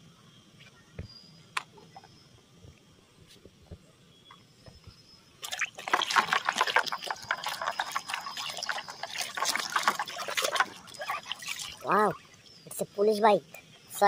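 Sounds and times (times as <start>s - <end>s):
water splashing in plastic basin: 5.4s - 12.2s.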